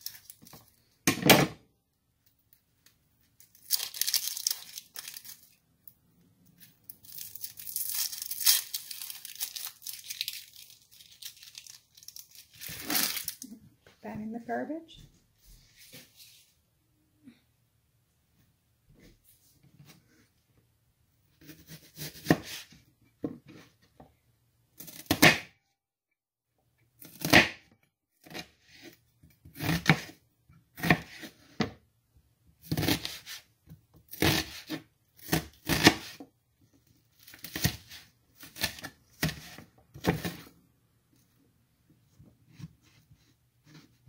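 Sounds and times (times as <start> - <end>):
knife cutting onion: 21.4 - 22.7, 24.8 - 25.5, 27.0 - 31.7, 32.6 - 33.5, 34.1 - 36.2, 37.2 - 40.5.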